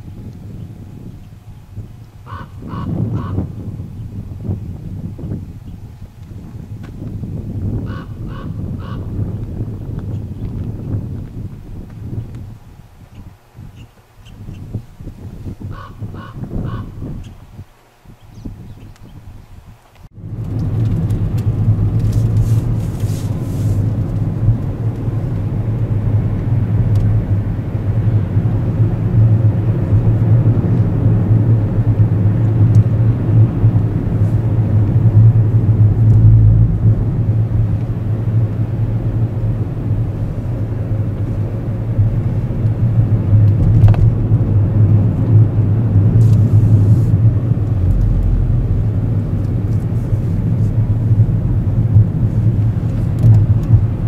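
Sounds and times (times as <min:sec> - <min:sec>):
car engine and road noise: 0:00.0 - 0:54.0.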